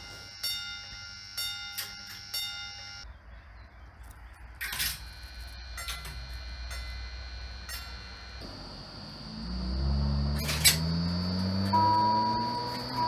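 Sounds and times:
level crossing ringing chimes: 0.0s - 3.0s, 9.9s - 13.0s.

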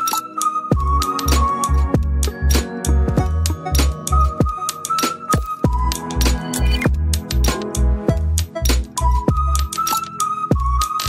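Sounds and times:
low pulsing drum beat: 3.1s - 3.6s.

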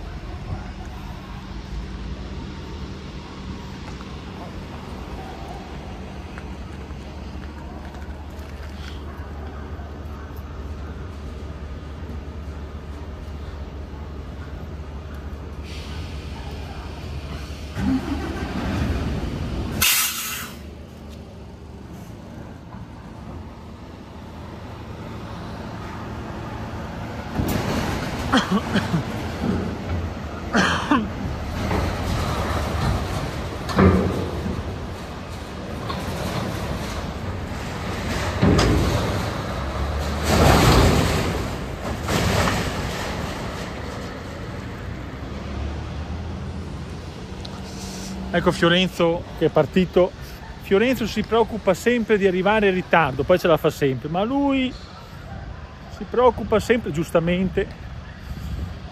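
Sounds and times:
truck engine rumbling: 0.0s - 58.9s
air brake hiss: 15.6s - 16.4s, 19.8s - 20.7s, 47.6s - 48.2s.

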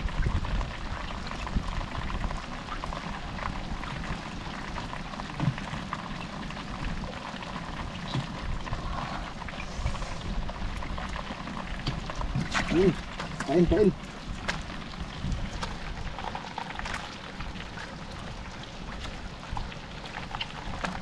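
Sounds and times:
light rain pattering: 0.0s - 21.0s.

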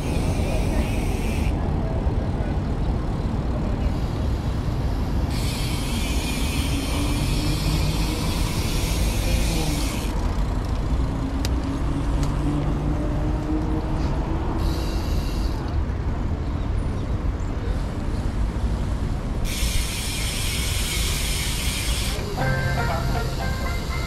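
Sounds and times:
low traffic rumble: 0.0s - 24.0s
vehicle passing with hiss: 3.7s - 15.9s, 17.7s - 24.0s.

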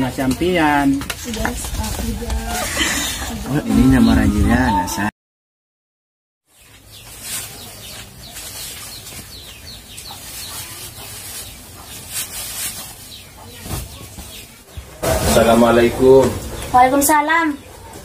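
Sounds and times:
small birds chirping: 6.5s - 18.0s.

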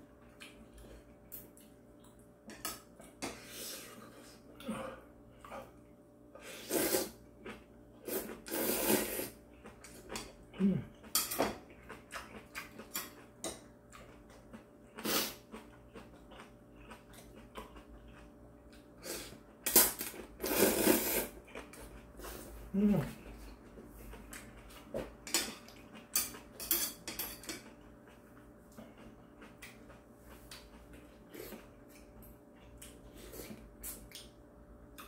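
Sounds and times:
quiet chewing: 0.1s - 5.9s, 9.4s - 19.4s, 21.4s - 26.6s, 27.3s - 35.0s
man slurping noodles: 6.5s - 7.2s, 8.1s - 9.4s, 15.0s - 15.4s, 20.4s - 21.4s.

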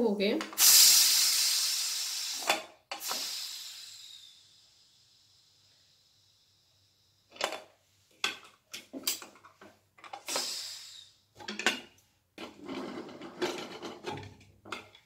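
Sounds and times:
pressure cooker hiss: 0.4s - 7.3s, 10.2s - 11.2s.

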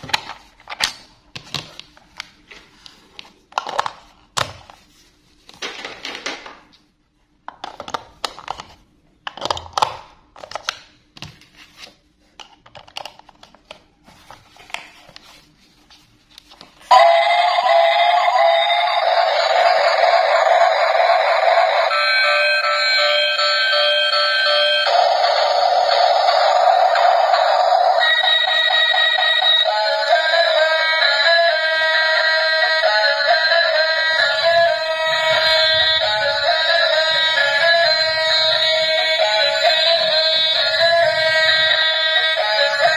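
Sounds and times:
toy speaker playing a tune: 16.9s - 42.9s.

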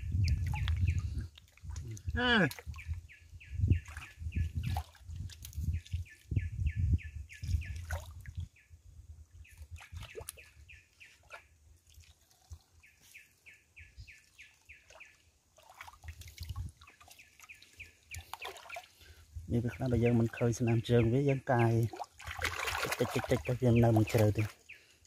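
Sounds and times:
hands splashing in water: 18.2s - 18.9s, 21.9s - 24.6s.

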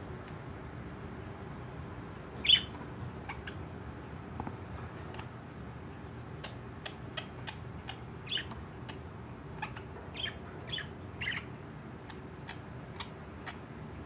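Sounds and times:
steady low hum: 0.0s - 14.0s
budgerigars chirping: 2.4s - 3.6s, 6.4s - 13.6s.

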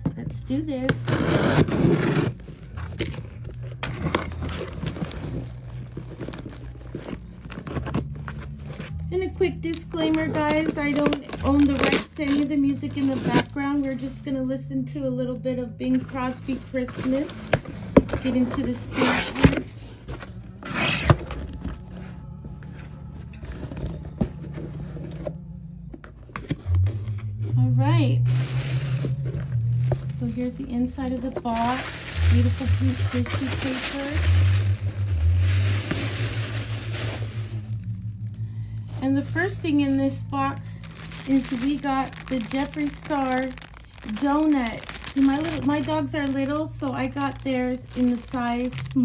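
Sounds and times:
faint background music: 0.0s - 49.0s
cardboard tearing rip: 1.1s - 2.4s.

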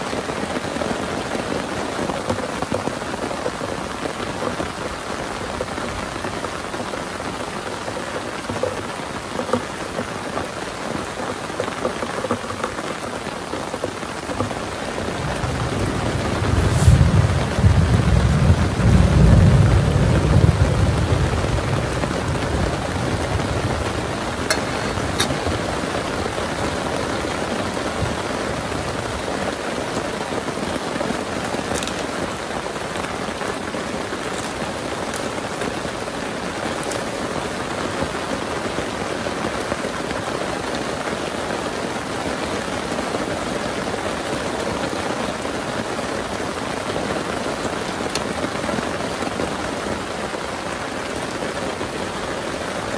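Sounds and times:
heavy rain: 0.0s - 52.9s
drip ticks: 7.8s - 14.7s, 31.6s - 32.5s, 33.4s - 35.7s
thunder rumble: 15.0s - 29.5s.

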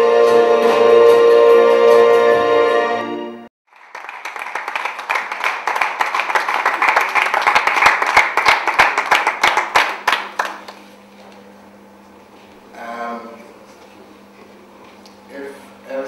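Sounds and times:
music: 0.0s - 3.5s
audience applauding: 3.7s - 10.8s.

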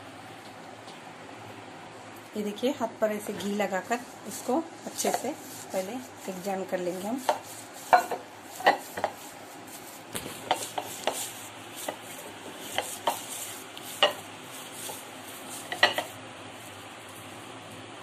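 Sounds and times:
hands rubbing dough: 3.4s - 18.0s
glass plate clinking: 7.9s - 9.1s, 14.0s - 14.2s, 15.7s - 16.1s.

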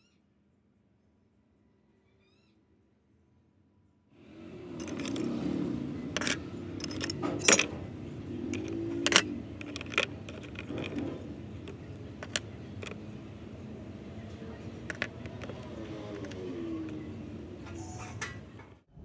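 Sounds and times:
low steady background noise: 0.0s - 19.0s
metal parts clinking on plastic box: 4.6s - 18.5s.

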